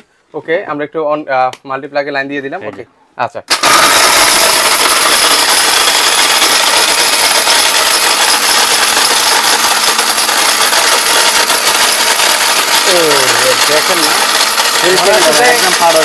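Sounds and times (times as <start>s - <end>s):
mixer grinder whirring: 3.5s - 16.0s.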